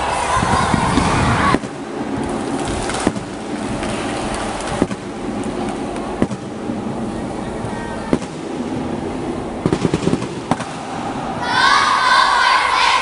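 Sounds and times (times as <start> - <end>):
children shouting: 0.0 - 1.7, 11.2 - 13.0
crowd cheering: 0.0 - 4.8, 10.7 - 13.0
large audience hubbub: 0.0 - 13.0.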